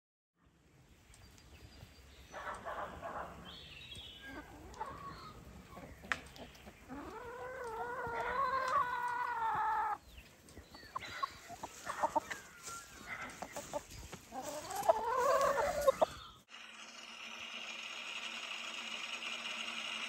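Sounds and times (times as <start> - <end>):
chicken long call: 4.2 - 5.9, 6.9 - 10.0, 10.9 - 16.2
chicken clucks: 4.2 - 16.3.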